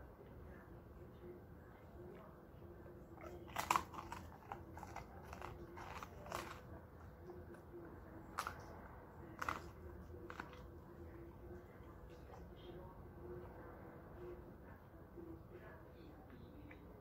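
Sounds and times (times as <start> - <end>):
dog crunching chicken bones: 3.2 - 7.6, 8.2 - 12.4.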